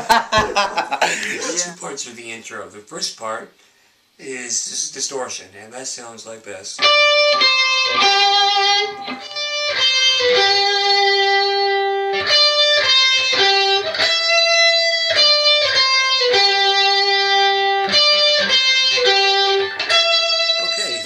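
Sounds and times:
distorted electric guitar riff: 6.8s - 21.0s.

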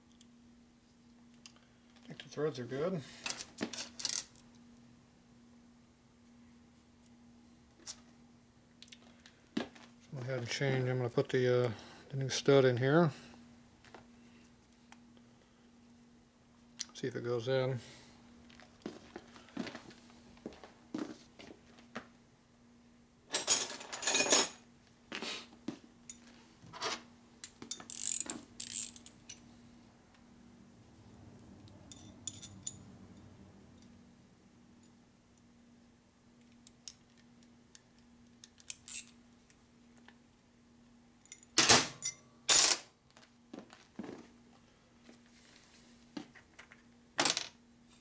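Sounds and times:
metal parts clinking on workbench: 3.3s - 4.4s, 23.3s - 24.6s.

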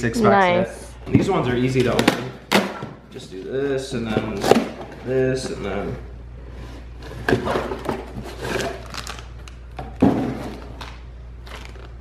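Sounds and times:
cardboard rustling and scraping: 6.5s - 9.2s.

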